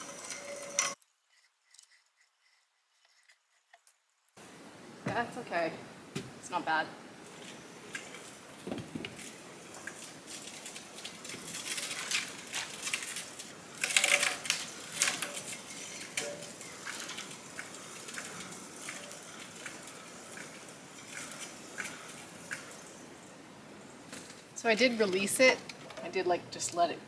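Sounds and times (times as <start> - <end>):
zip line pulley clicking and rattling: 0.0 - 4.0, 9.0 - 23.2.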